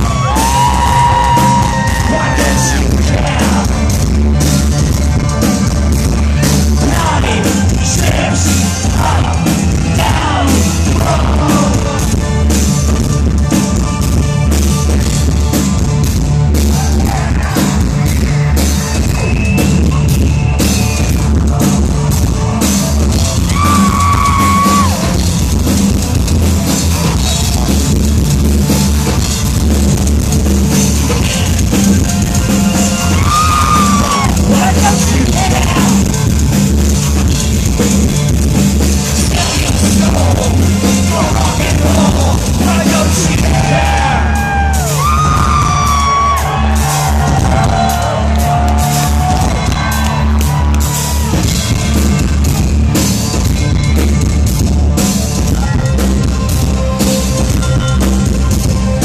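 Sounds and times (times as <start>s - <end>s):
live electro-industrial band: 0.0s - 59.0s
pulsing bass: 0.0s - 59.0s
vocalist singing: 0.1s - 4.1s, 6.8s - 12.6s, 33.1s - 36.2s, 39.1s - 44.8s.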